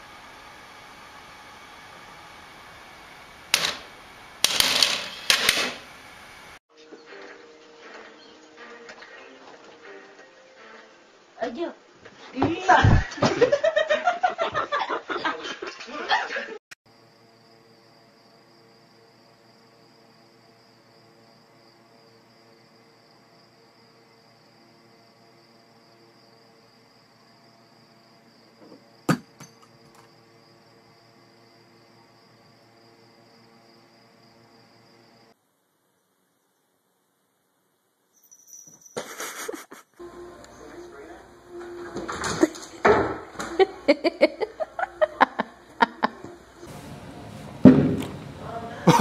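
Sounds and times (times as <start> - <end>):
faint hum with high whine: 0.0 - 6.6, 40.0 - 49.0
child's lively voice: 11.4 - 12.9
sharp knock: 29.1 - 29.4.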